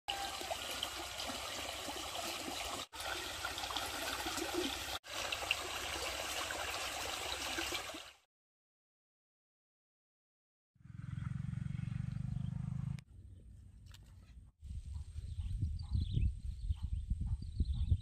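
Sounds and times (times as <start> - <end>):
stream water rippling and splashing: 0.1 - 8.3.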